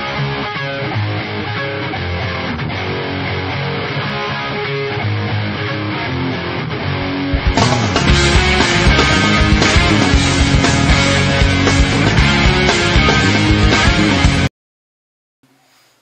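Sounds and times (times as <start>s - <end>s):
guitar background music: 0.0s - 14.5s
heavy low beat: 7.1s - 14.5s.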